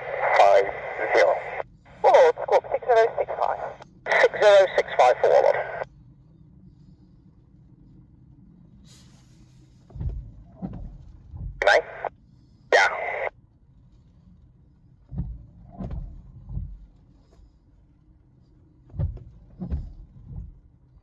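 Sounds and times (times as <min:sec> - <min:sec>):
tinny scanner radio bursts: 0:00.0 - 0:05.8, 0:11.6 - 0:12.1, 0:12.7 - 0:13.3
low thumps: 0:09.9 - 0:11.6.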